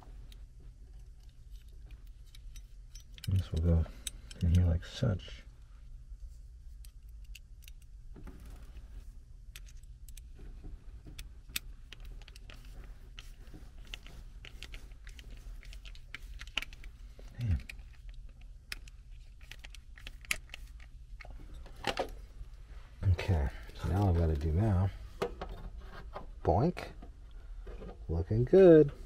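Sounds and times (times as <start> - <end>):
steady low hum: 0.0 - 29.0
small metallic clinks: 1.0 - 4.8.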